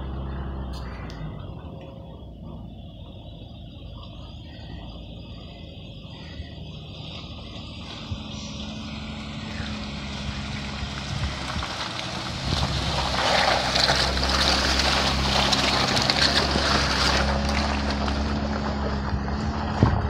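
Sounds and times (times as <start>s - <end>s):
car engine running: 0.0s - 20.0s
tyres hissing through mud: 4.1s - 19.8s.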